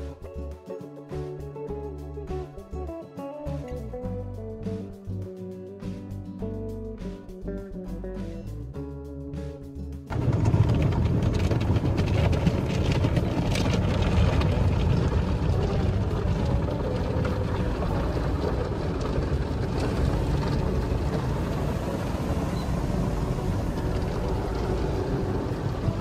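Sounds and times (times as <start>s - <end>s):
low rumble: 10.1s - 26.0s
water spraying on car: 10.1s - 26.0s.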